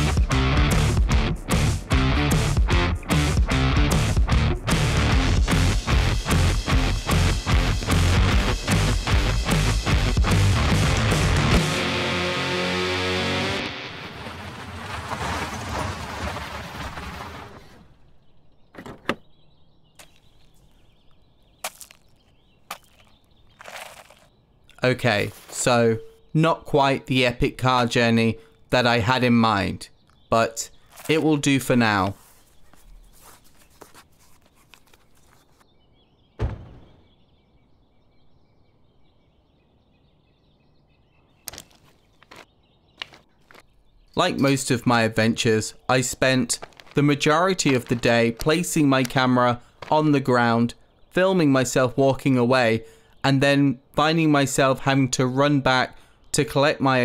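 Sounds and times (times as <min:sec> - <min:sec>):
car stopping on gravel: 0:13.2 - 0:17.8
faint bird chirps: 0:17.9 - 0:26.4, 0:32.2 - 0:44.4
footsteps on dirt path: 0:19.9 - 0:24.3, 0:25.2 - 0:25.7, 0:30.1 - 0:35.7, 0:41.4 - 0:44.7, 0:46.2 - 0:50.1
boot lacing rustling and clicks: 0:20.0 - 0:24.3, 0:30.8 - 0:31.2, 0:32.1 - 0:35.7, 0:41.4 - 0:44.6, 0:46.5 - 0:49.2
deep thump: 0:36.4 - 0:37.2.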